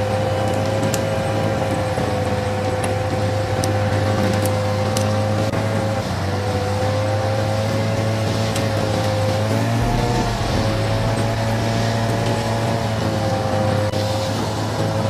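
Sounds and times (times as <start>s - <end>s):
steady whine: 9.8s - 13.9s.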